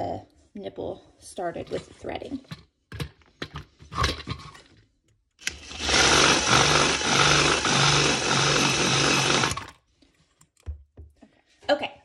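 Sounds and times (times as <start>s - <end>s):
power drill running: 5.4s - 9.8s.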